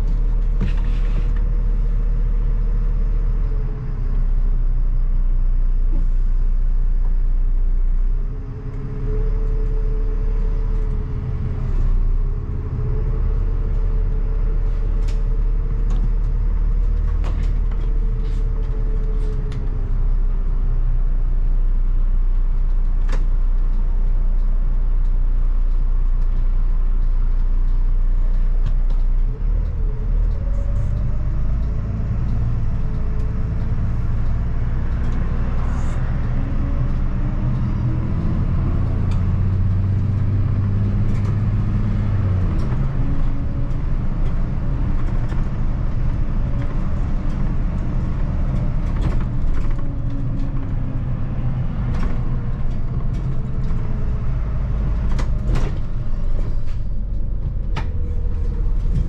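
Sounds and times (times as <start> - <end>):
bus diesel engine accelerating: 0.0 - 59.0.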